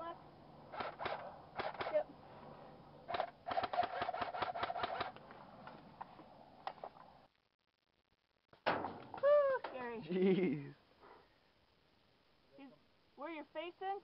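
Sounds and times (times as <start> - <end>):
airsoft rifle shots: 0.7 - 2.0, 3.1 - 5.1.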